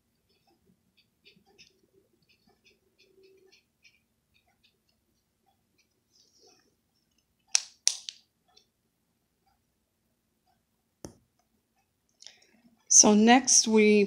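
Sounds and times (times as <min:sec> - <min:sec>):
marker plastic clicks: 0:07.1 - 0:08.7.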